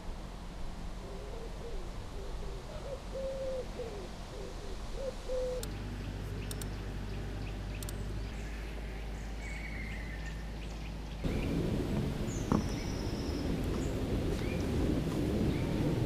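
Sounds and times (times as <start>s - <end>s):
pigeon cooing: 1.0s - 5.7s
faint sharp clicks: 5.6s - 5.8s, 6.4s - 6.8s, 7.7s - 8.0s.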